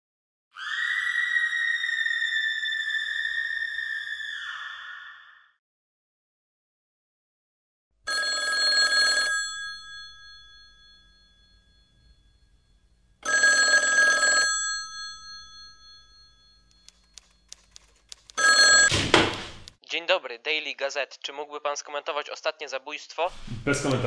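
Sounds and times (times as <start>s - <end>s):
telephone bell ringing: 8.1s - 17.5s, 18.4s - 19.0s
faint clicks: 16.7s - 18.4s.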